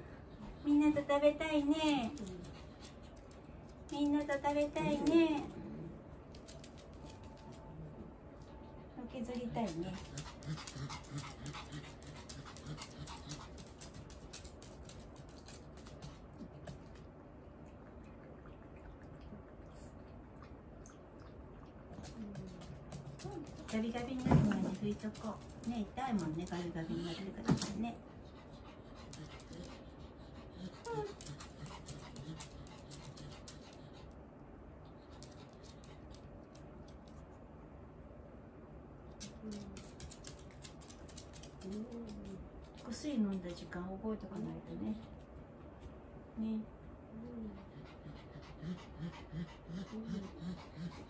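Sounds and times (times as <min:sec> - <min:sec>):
dog panting: 0:08.4 - 0:16.9, 0:22.0 - 0:34.3, 0:47.4 - 0:51.0.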